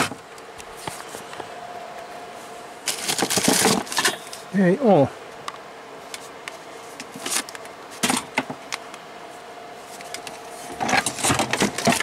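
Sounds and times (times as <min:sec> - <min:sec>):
faint steady hum: 0:00.0 - 0:12.0
cables rustling and clicking: 0:02.8 - 0:04.5, 0:05.4 - 0:09.0, 0:09.8 - 0:12.0.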